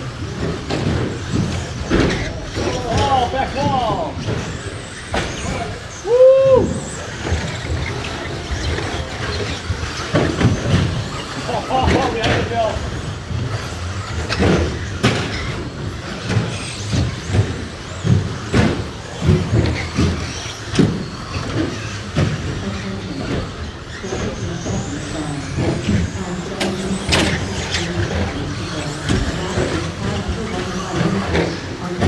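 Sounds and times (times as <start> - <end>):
rc truck motor whine: 0.0 - 32.0
trucks knocking and clattering: 6.6 - 32.0.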